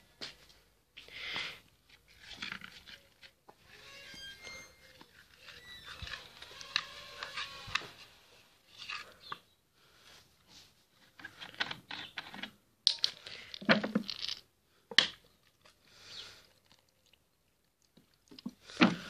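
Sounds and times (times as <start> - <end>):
heavy breathing: 1.0 - 1.7.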